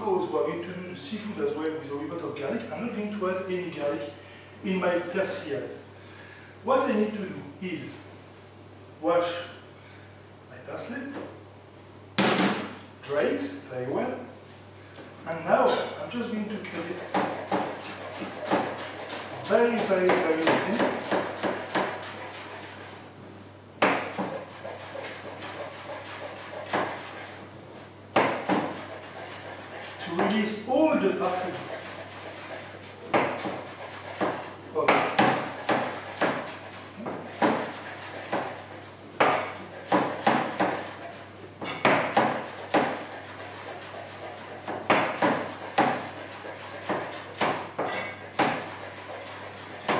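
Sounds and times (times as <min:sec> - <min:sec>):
knife chopping on board: 0:16.9 - 0:22.8, 0:23.8 - 0:27.3, 0:28.2 - 0:30.4, 0:31.6 - 0:49.9.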